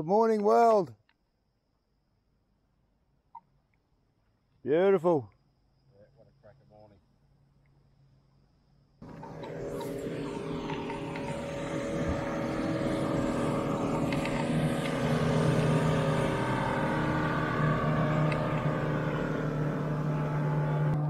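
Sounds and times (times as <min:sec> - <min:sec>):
motorboat engine running: 0:09.0 - 0:21.0.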